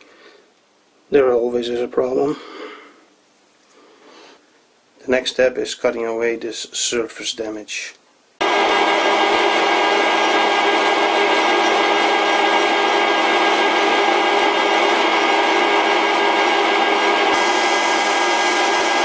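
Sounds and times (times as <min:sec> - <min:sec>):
metal lathe gear whine: 0:08.5 - 0:19.0.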